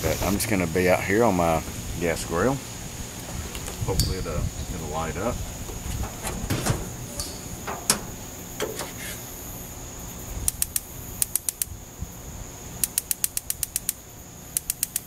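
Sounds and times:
spark igniter clicking: 10.4 - 11.7, 12.8 - 15.0.

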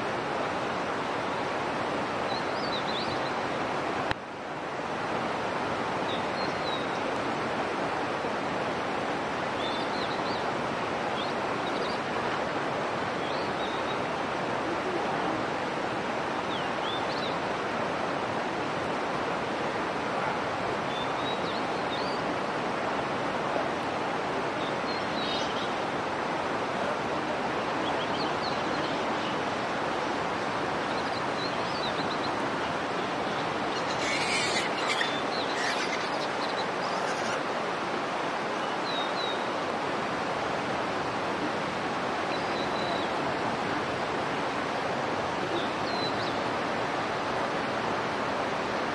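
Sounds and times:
outdoor background rush: 0.0 - 48.9
high-pitched calls: 33.7 - 37.4.

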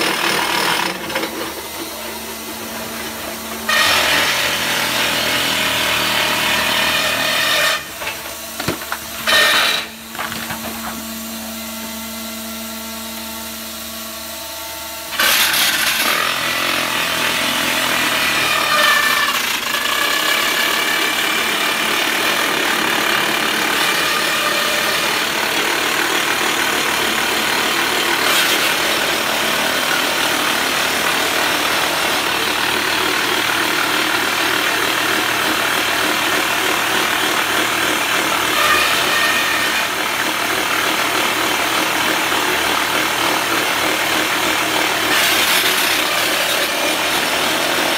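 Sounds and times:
rock drill hammering: 0.0 - 1.6, 15.2 - 47.9
motor hum: 0.0 - 47.9.

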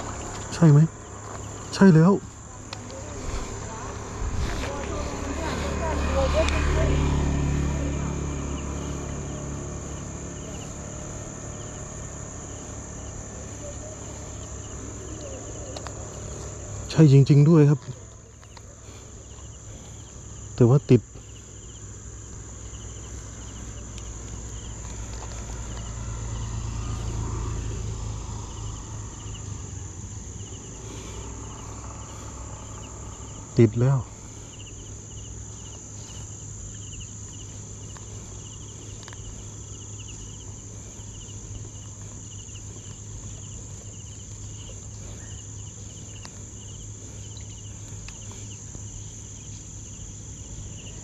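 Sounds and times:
crickets trilling: 0.0 - 51.0
high-pitched insect drone: 0.0 - 51.0
low rumble: 2.4 - 16.8.

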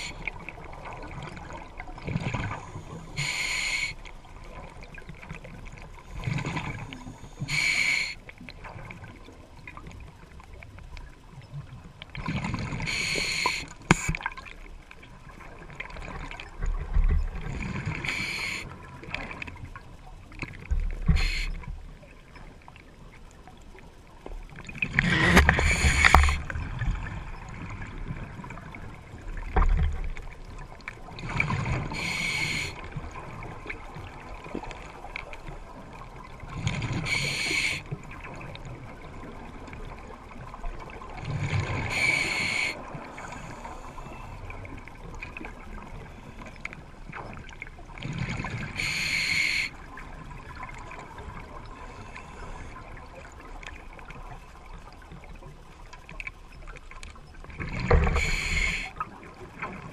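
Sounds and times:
hissing regulator inhalations: 3.0 - 4.0, 6.7 - 8.2, 12.8 - 14.2, 18.0 - 18.7, 21.1 - 21.6, 25.2 - 26.4, 31.9 - 32.8, 36.9 - 37.8, 41.8 - 44.2, 48.8 - 49.7, 58.0 - 58.9.

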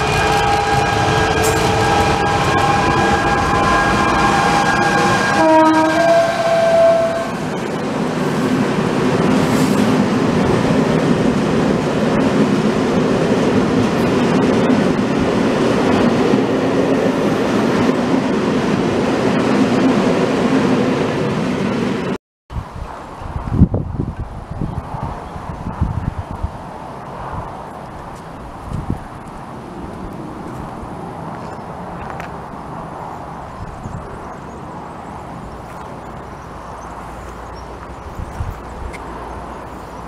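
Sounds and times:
locomotive horn: 0.0 - 7.5.

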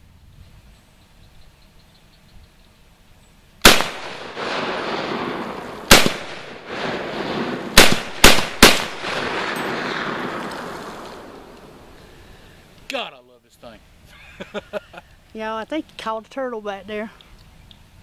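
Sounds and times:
rifle shots with reverberation: 3.6 - 11.9.

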